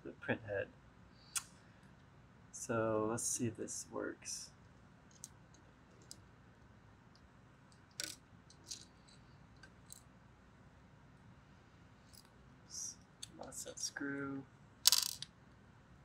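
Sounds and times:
small metal parts clicking: 7.9 - 8.9, 14.8 - 15.3.

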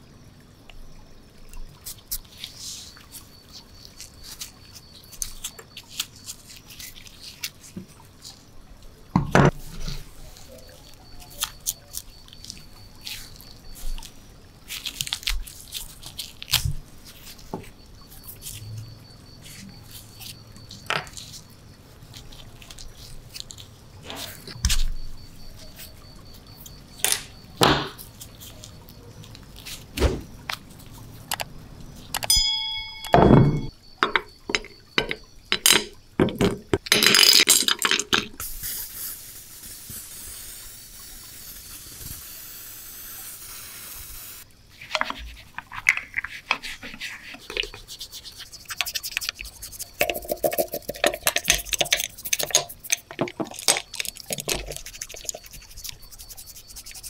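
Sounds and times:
noisy rush and steady hiss: 0.0 - 53.8
short chime: 32.3 - 33.7
toy wheel being handled: 44.8 - 57.0.

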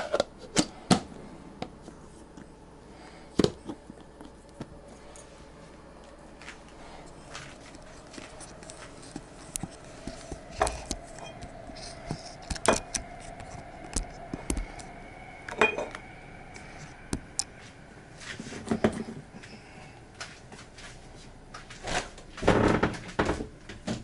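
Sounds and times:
faint steady hum: 0.0 - 24.0
utensils and dishes clinking: 10.5 - 13.4, 15.5 - 16.0.

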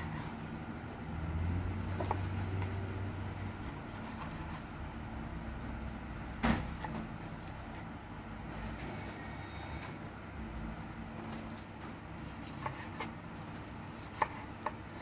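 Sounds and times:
knife slicing on cutting board: 12.2 - 13.1, 13.9 - 15.0.

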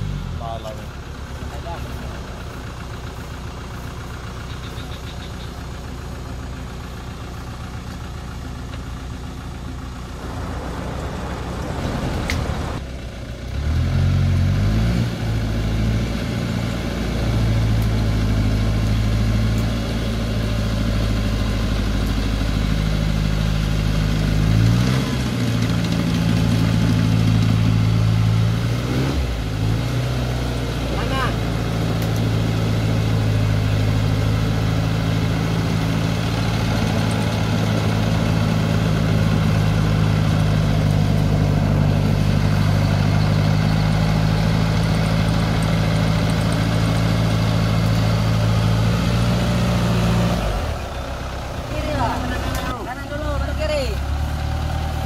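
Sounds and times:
engine idling: 0.0 - 55.0
louder engine revving: 13.5 - 55.0.

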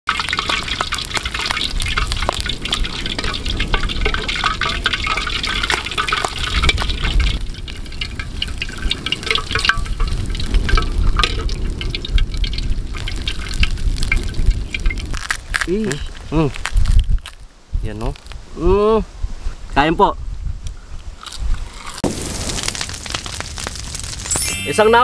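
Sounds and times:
hot oil sizzling and crackling: 0.0 - 18.6, 20.7 - 25.0
oil streaming into a wok: 0.1 - 16.2.

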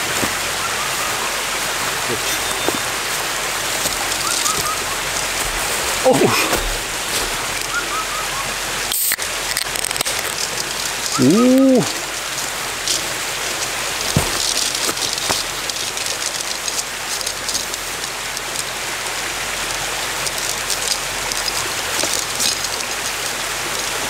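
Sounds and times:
stream rushing: 0.0 - 24.0.

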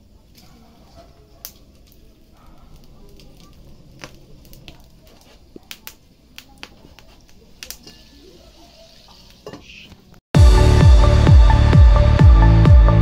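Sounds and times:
wood fire crackling: 0.0 - 10.2
sharp pops of fire: 1.4 - 8.0.

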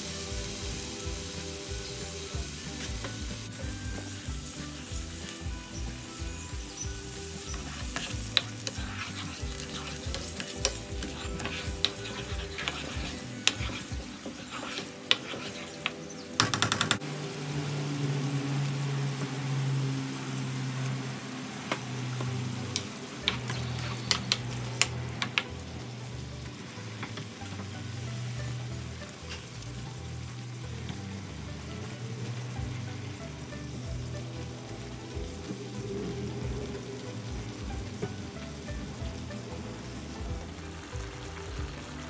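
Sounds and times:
sauce sizzling in a pan: 0.0 - 42.0
spatula scraping and tapping pan: 6.6 - 17.0, 22.2 - 25.6.

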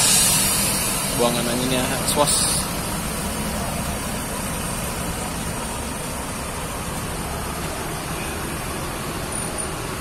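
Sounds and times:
bus engine: 0.0 - 10.0
traffic noise: 0.0 - 10.0.

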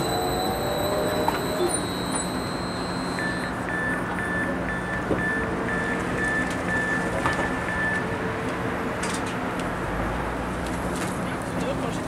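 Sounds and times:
train door short high beeps: 0.0 - 8.2
steady high whine: 0.0 - 10.2
standing train hum: 0.0 - 12.0.

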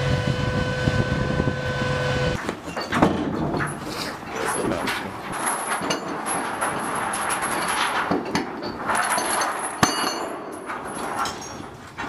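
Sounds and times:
military vehicle noise: 0.0 - 9.6.

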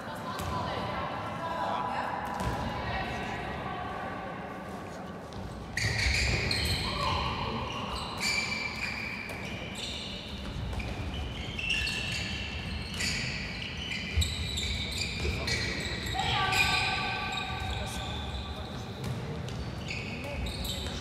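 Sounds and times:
sports shoes squeaking on floor: 5.3 - 21.0.

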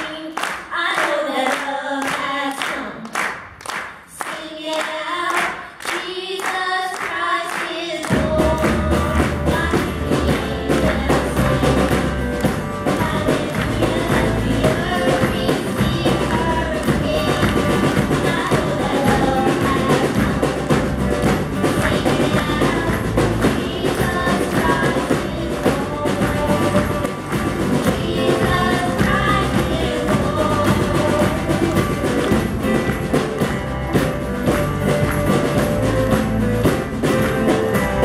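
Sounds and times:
hand-clapping in time: 0.0 - 38.0
voices singing: 4.2 - 38.0
band with bass and drums: 8.0 - 38.0.

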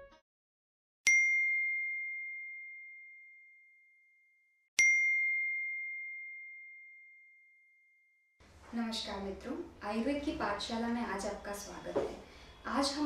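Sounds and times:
high bell-like chime: 4.8 - 7.8.

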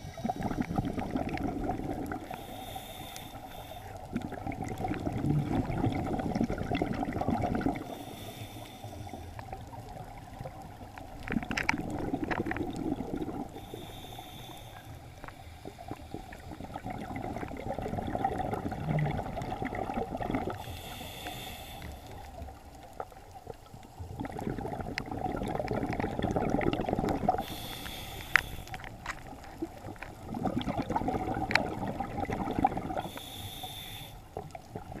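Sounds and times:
diver breathing through regulator: 0.0 - 1.0, 2.2 - 4.1, 7.8 - 9.4, 13.2 - 16.8, 20.5 - 22.4, 27.3 - 29.2, 32.8 - 34.4
exhale bubbling rumble: 0.0 - 2.6, 4.0 - 8.4, 9.3 - 14.0, 15.6 - 21.2, 22.2 - 28.1, 28.7 - 33.2, 34.3 - 35.0.

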